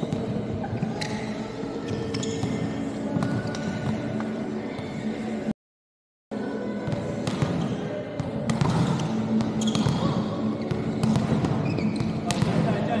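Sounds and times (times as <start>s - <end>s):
basketball bouncing on court: 8.5s - 12.7s.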